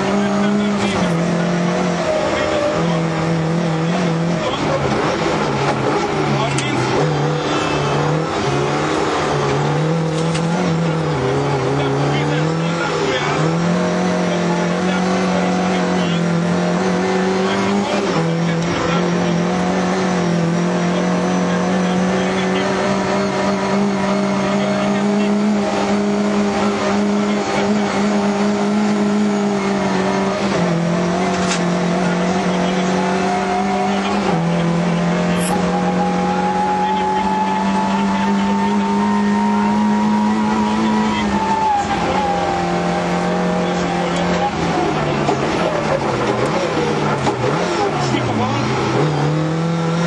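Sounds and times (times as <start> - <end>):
rally car engine pulling hard: 0.0 - 50.0
road and tyre noise: 0.0 - 50.0.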